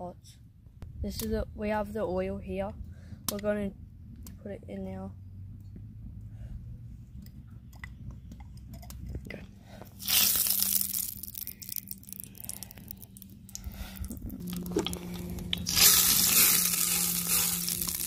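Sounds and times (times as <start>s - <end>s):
oil sizzling in a pot: 10.0s - 11.9s, 15.5s - 18.0s.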